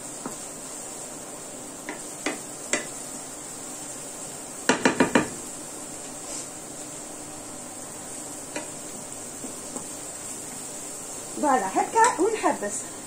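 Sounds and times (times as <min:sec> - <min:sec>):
hiss of frying: 0:00.0 - 0:13.0
wooden spatula knocking on pan: 0:01.9 - 0:02.9, 0:04.7 - 0:05.4.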